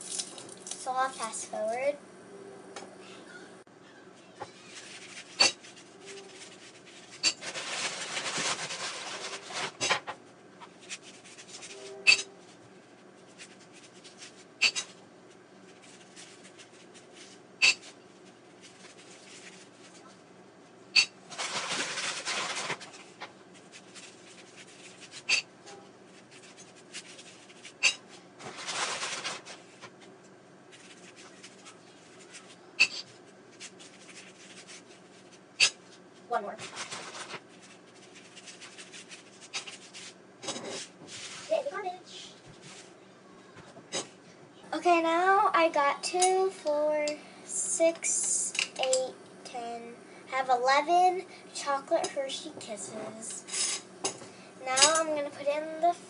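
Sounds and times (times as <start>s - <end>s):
foil wrappers crinkling: 4.5s - 10.0s, 10.7s - 11.8s, 12.4s - 20.2s, 21.3s - 25.4s, 26.1s - 30.0s, 30.7s - 40.2s.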